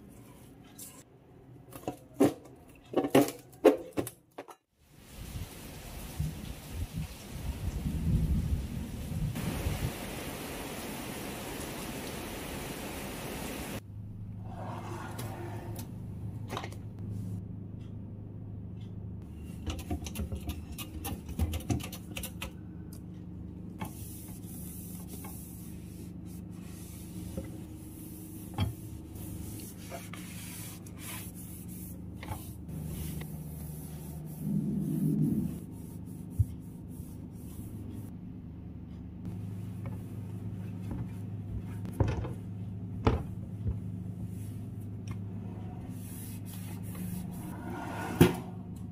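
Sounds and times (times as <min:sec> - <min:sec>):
steady low hum: 0:13.8 - 0:48.9
cloth wiping cabinets: 0:23.8 - 0:38.1, 0:45.9 - 0:48.3.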